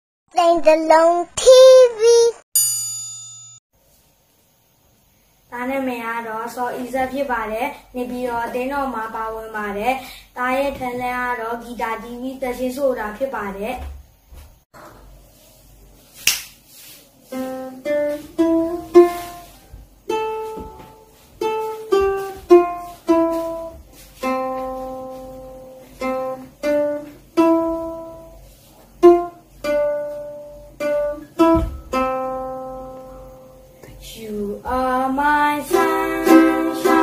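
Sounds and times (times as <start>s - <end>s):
ukulele plucked melody: 35.7s - 37.0s.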